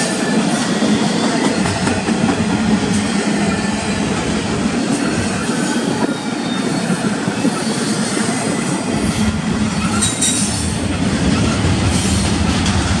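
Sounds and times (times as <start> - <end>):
train wheels rumbling on rails: 0.0 - 13.0
high wheel squeal: 4.7 - 12.2.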